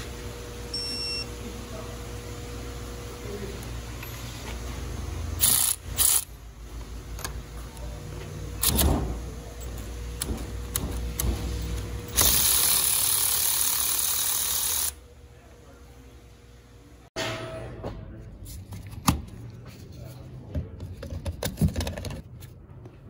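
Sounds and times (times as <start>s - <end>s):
cordless ratchet motor: 5.4s - 6.3s, 12.1s - 15.0s
tool clank and clicks: 8.6s - 12.3s.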